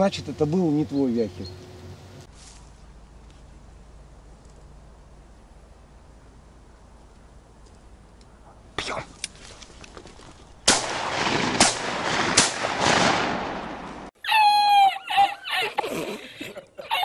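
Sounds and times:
shotgun shots: 10.7 - 14.1
man laughing wheezily: 14.6 - 17.0.

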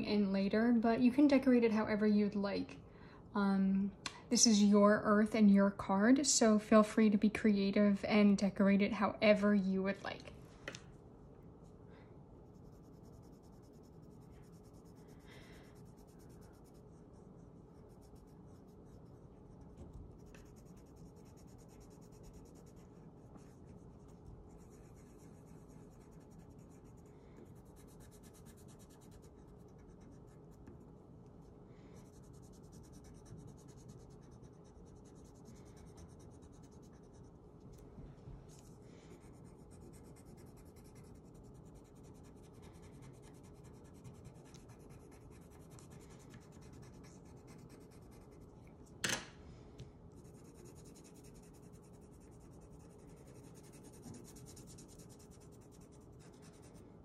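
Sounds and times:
colored pencil scratching on paper: 12.4 - 31.0, 31.9 - 37.8, 38.5 - 48.9, 50.1 - 56.8.

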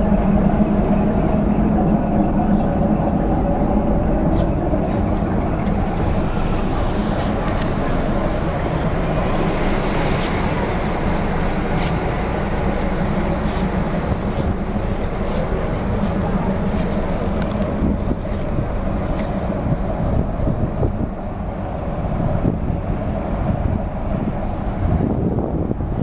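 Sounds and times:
ship engines humming: 0.0 - 26.0.

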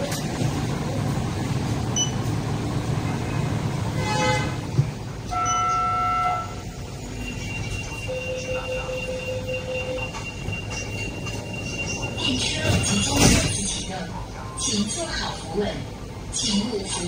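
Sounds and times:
tram horn toot: 3.9 - 11.8.

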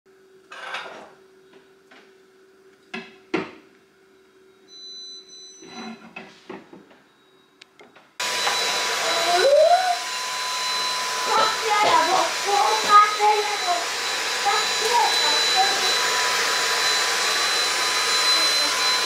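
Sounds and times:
stick vacuum cleaner whining: 8.2 - 19.0.

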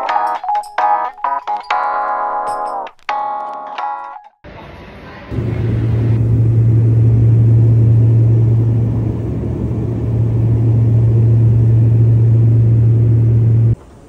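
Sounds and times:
airliner cabin rumble: 5.3 - 14.0.

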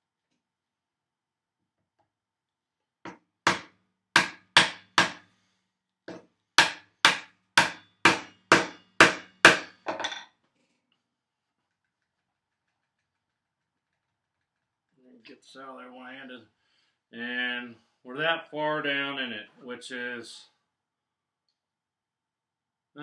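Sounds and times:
mallet striking chisel: 3.1 - 5.2, 6.1 - 9.9.

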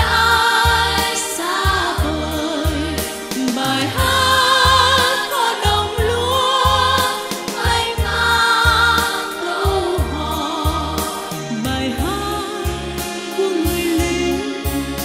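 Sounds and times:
children's choir singing: 0.0 - 11.5
woman singing with vibrato: 0.0 - 14.9.

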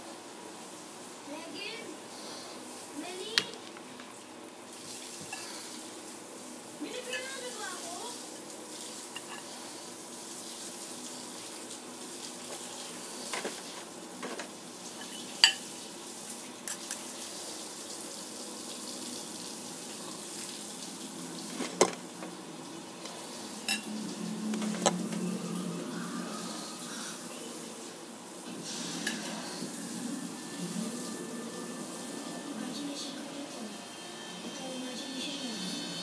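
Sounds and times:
spoon and fork scraping on plate: 9.2 - 9.5, 15.0 - 15.6.

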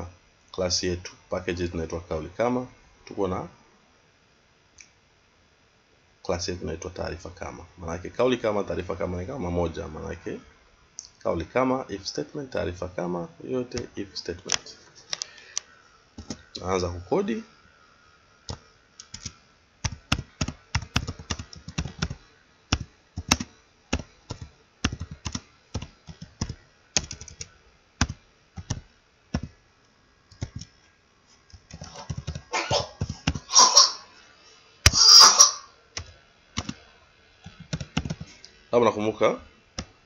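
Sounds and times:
computer keyboard typing: 16.2 - 16.4, 18.5 - 29.5, 30.3 - 30.7, 31.5 - 33.4, 36.0 - 36.8, 37.4 - 38.3.

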